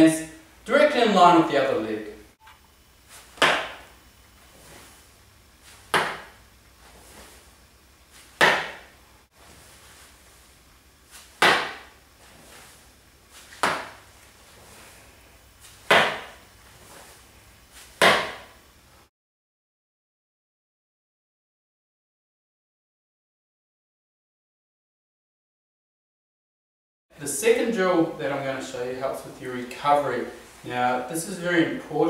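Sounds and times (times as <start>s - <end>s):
sneaker slapping on hard floor: 3.2s - 3.9s, 5.7s - 6.4s, 8.2s - 9.0s, 11.1s - 12.0s, 13.4s - 14.0s, 15.6s - 16.4s, 17.8s - 18.6s.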